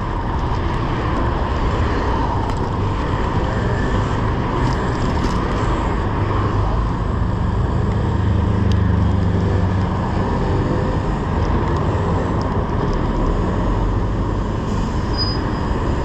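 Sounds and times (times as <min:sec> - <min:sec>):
city traffic: 0:00.0 - 0:16.0
short high squeal: 0:14.7 - 0:15.8.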